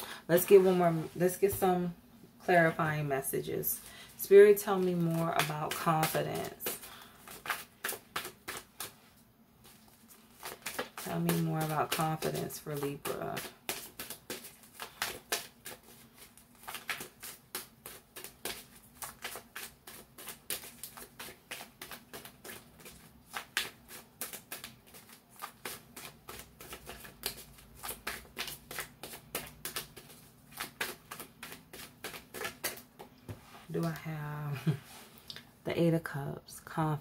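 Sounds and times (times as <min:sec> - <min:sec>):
cards being shuffled: 0:04.7 - 0:09.0, 0:09.6 - 0:34.0.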